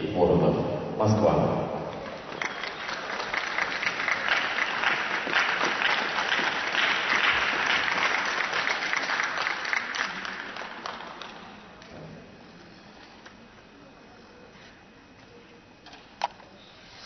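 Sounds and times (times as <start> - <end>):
audience applauding: 1.9 - 11.6.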